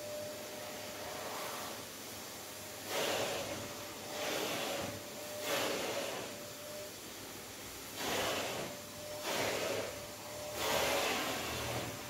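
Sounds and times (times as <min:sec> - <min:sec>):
faint steady tone: 0:05.1 - 0:07.6.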